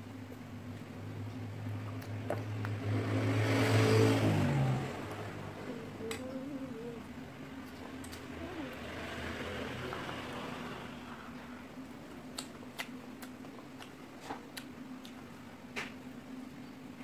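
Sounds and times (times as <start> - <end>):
steady low hum: 0.0 - 17.0
child chewing with wet smacks: 0.2 - 3.3, 7.6 - 8.9, 11.3 - 16.8.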